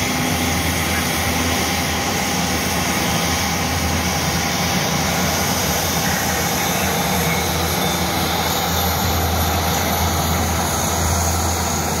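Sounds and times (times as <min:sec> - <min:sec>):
turboprop engine droning: 0:00.0 - 0:12.0.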